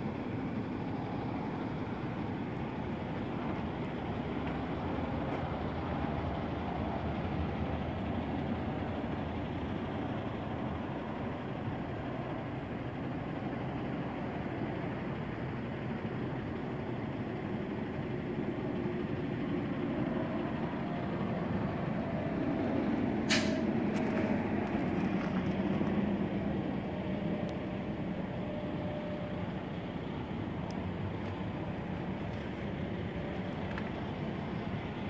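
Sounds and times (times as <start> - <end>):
road traffic rumble: 0.0 - 35.0
sharp click: 23.3 - 23.7.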